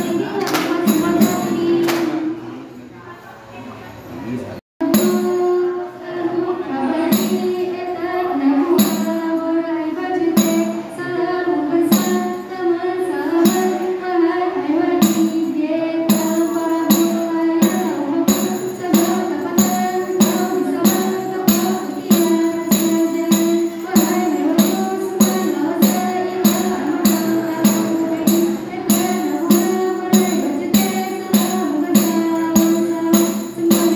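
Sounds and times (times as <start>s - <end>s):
voices singing in unison: 0.0s - 2.3s, 4.8s - 33.9s
sharp hand claps: 0.4s - 1.0s, 1.8s - 2.2s.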